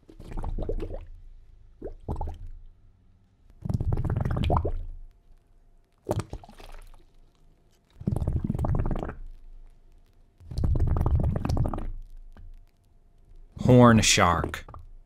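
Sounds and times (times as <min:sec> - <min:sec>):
underwater bubbling water: 0:00.0 - 0:02.7, 0:03.6 - 0:05.0, 0:08.0 - 0:09.4, 0:10.4 - 0:12.6.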